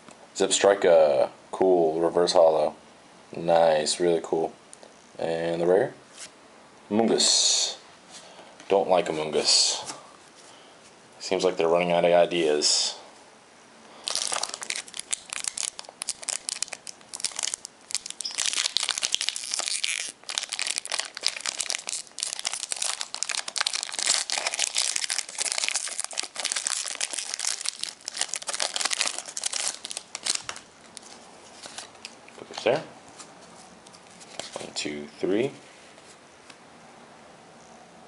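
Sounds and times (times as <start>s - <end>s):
foil wrapper crinkling and tearing: 14.0s - 32.2s.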